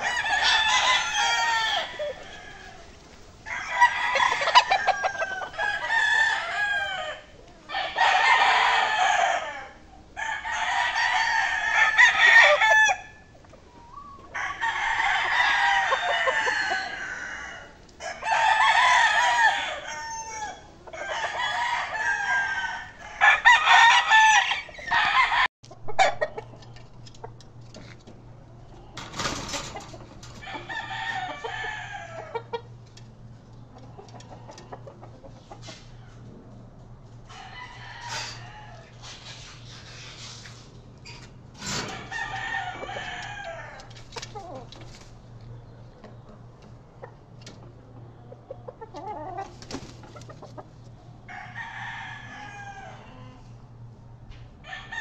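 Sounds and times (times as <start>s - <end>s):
roosters crowing: 0.0s - 40.0s, 41.0s - 45.4s, 46.3s - 55.0s.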